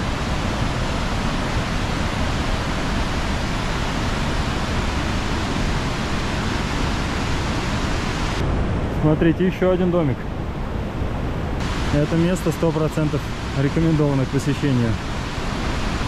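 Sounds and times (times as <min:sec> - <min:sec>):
river in a gorge: 0:00.0 - 0:16.0
waterfall roaring: 0:00.0 - 0:16.0.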